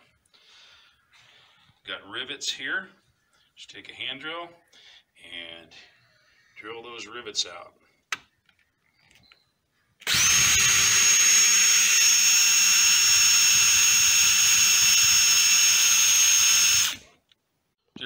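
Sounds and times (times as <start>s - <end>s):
cordless drill whine: 10.0s - 17.1s.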